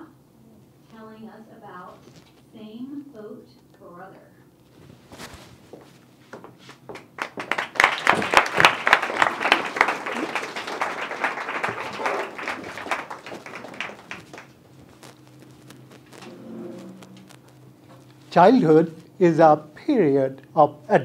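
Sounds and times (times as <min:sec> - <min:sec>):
audience applauding: 0:06.9 - 0:15.2.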